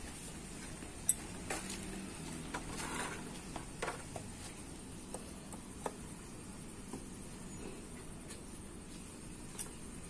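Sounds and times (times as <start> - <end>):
metal scrape: 2.6 - 3.4.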